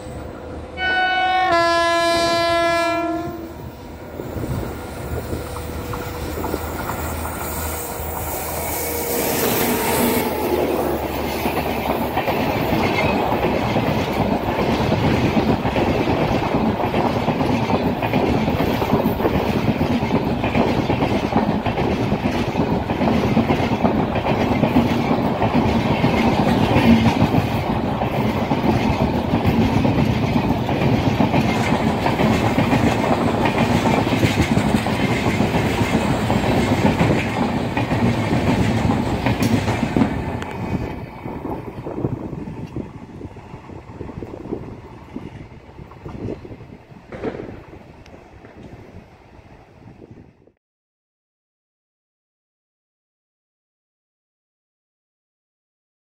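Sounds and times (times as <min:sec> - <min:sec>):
electric locomotive passing: 0:00.0 - 0:50.6
locomotive horn: 0:00.7 - 0:03.7
train wheels clattering over rail joints: 0:05.1 - 0:47.7.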